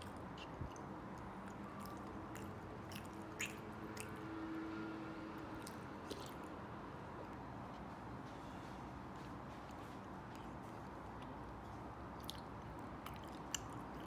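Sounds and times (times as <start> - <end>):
mouth clicks and smacks: 0.0 - 4.2, 5.6 - 6.5, 12.2 - 14.0
quiet chewing: 0.0 - 4.2, 5.5 - 6.6, 9.2 - 14.0.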